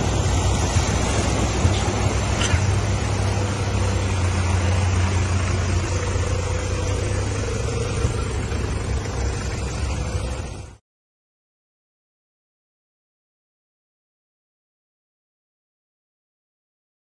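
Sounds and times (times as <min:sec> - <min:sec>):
low engine hum: 0:00.0 - 0:10.8
water rushing and sloshing: 0:00.0 - 0:10.8.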